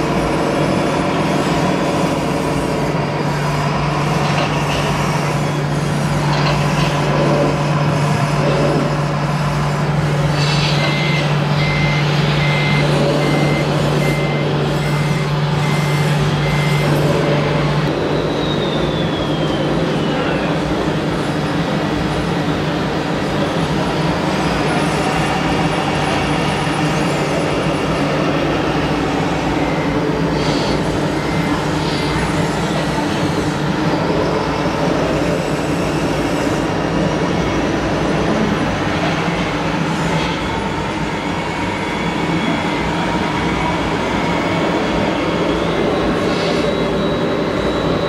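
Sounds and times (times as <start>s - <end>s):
model trucks motor hum and whine: 0.0s - 48.0s.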